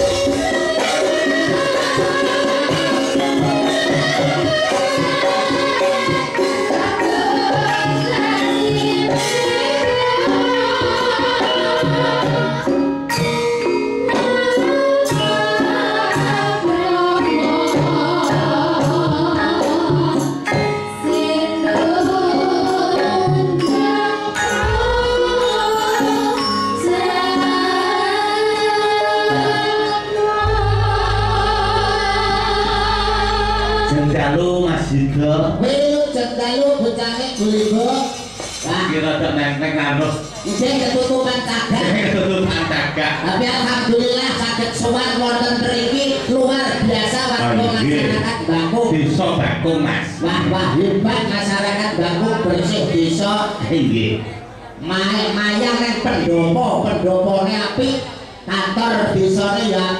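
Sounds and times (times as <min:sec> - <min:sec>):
sharp drum and metal strokes: 0:00.0 - 0:26.6, 0:37.0 - 0:42.9
gamelan music with singing: 0:00.0 - 0:59.9
deep sustained low notes: 0:30.4 - 0:35.8
man singing through microphone: 0:33.8 - 0:36.5.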